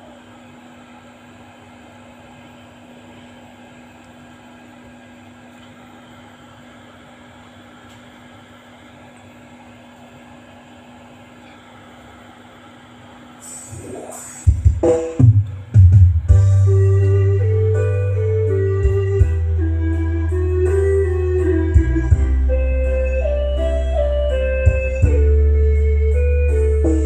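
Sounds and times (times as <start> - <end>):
amplifier hiss: 13.4 - 19.6
low amplifier hum: 13.7 - 27.0
music from speaker: 13.7 - 27.0.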